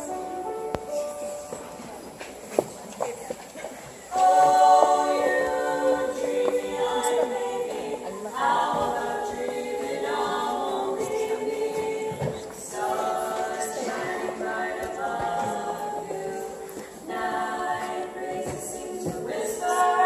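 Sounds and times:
female quartet singing a cappella: 4.1 - 20.0.

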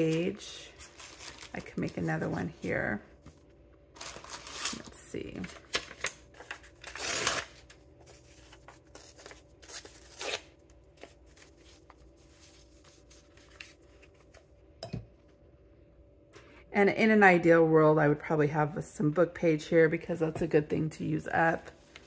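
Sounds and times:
paper rustling: 0.0 - 10.3, 10.9 - 14.5.

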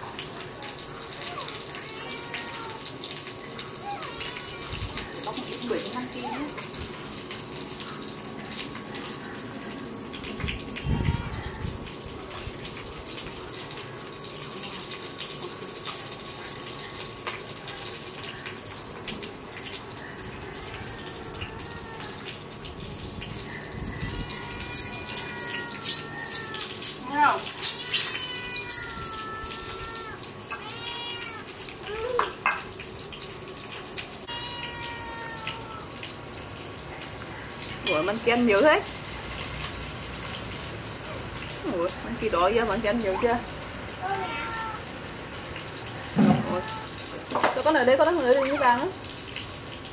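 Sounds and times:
young animal crying: 0.6 - 3.0, 3.8 - 6.5, 10.8 - 11.9, 20.0 - 22.5, 23.4 - 32.2, 34.2 - 36.0, 43.1 - 45.0, 46.0 - 47.0.

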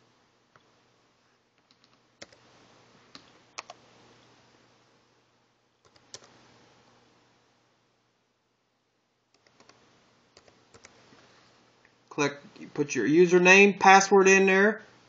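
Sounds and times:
computer keys clicking: 1.6 - 2.5, 3.1 - 3.8, 5.8 - 6.4, 9.3 - 9.8, 10.4 - 11.0.

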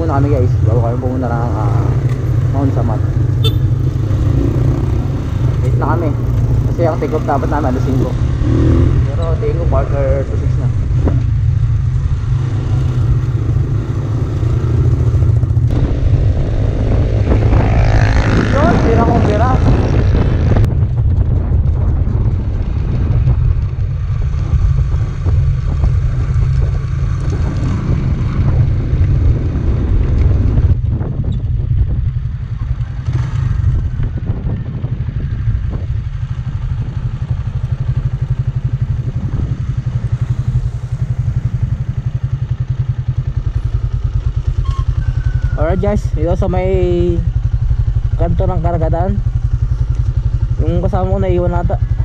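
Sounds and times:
low rumble: 0.0 - 52.0
motorcycle engine running: 0.0 - 52.0.

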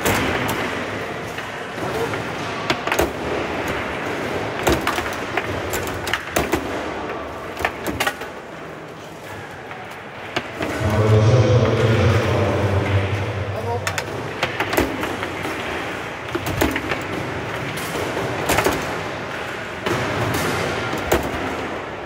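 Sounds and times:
foosball men striking ball: 2.1 - 8.4
murmur of voices: 6.6 - 21.0.

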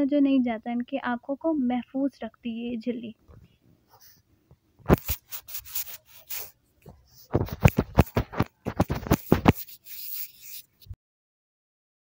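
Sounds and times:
microphone handling rustles and bumps: 3.2 - 9.7.

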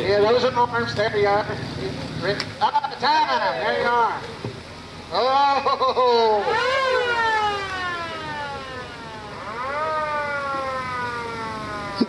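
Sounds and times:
siren wailing: 6.2 - 12.0.

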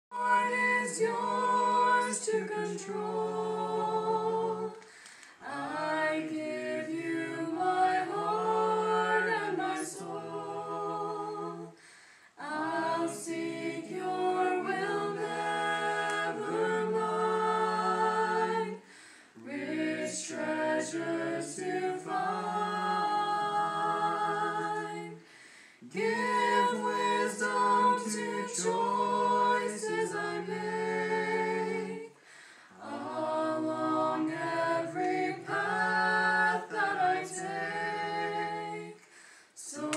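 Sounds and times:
group singing a cappella hymn: 0.1 - 39.9.

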